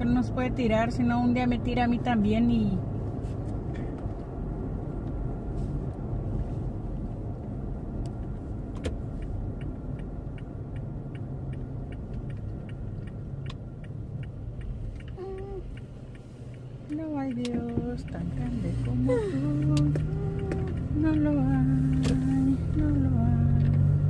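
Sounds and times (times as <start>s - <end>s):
car road rumble from inside: 0.0s - 24.0s
light regular ticking: 3.7s - 24.0s.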